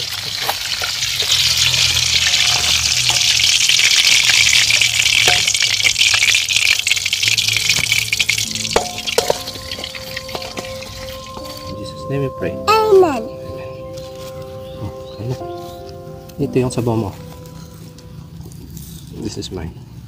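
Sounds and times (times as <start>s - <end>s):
hot oil sizzling and crackling: 0.0s - 11.8s.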